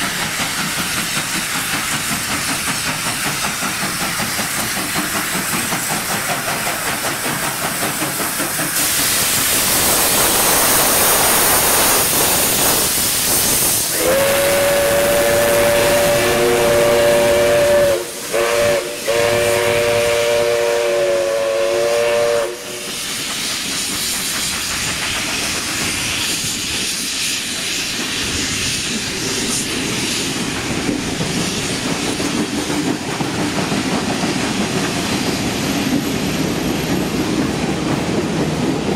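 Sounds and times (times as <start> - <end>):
steam locomotive hissing steam: 0.0 - 38.9
train carriages rolling past: 0.0 - 38.9
locomotive chime whistle: 13.9 - 22.9.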